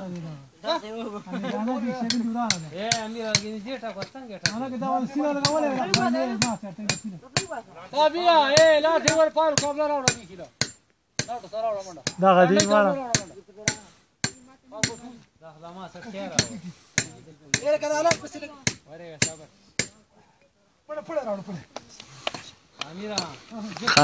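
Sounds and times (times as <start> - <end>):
sharp rhythmic knocks: 2.0 - 7.6, 8.5 - 11.4, 12.0 - 15.2, 16.3 - 20.0.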